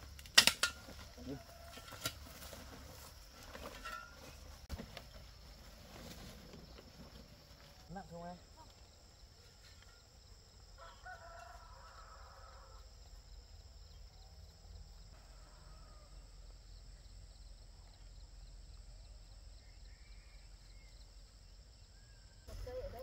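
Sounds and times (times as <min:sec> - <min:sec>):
rooster crowing: 0:01.0 - 0:02.5, 0:10.6 - 0:13.0, 0:15.2 - 0:16.5.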